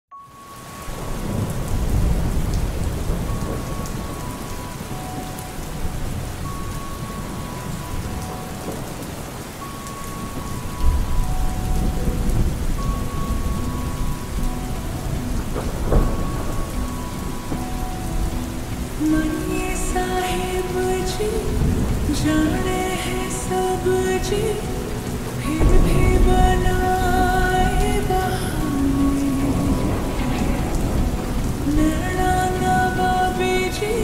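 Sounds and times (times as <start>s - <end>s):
heavy rain: 0.2s - 34.0s
rolling thunder: 0.9s - 8.9s, 10.2s - 19.0s, 25.4s - 33.7s.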